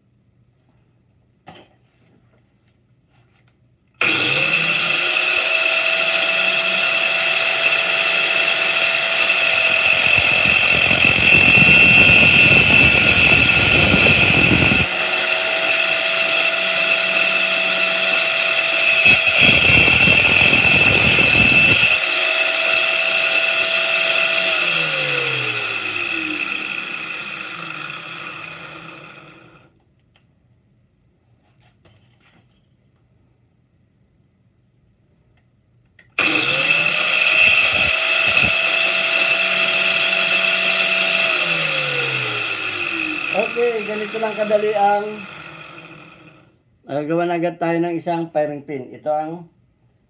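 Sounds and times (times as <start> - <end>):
metal grinding on wheel: 4.0 - 29.6, 36.2 - 46.5
grinder motors whining: 4.0 - 29.7, 36.2 - 46.5.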